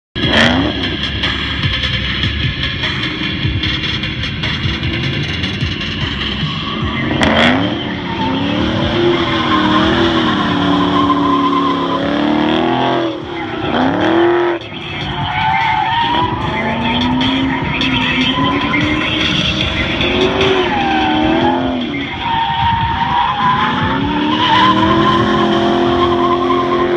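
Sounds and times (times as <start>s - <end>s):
car engine revving hard: 0.2s - 1.3s, 6.8s - 14.6s, 16.0s - 26.9s
tyres skidding and squealing: 0.2s - 26.9s.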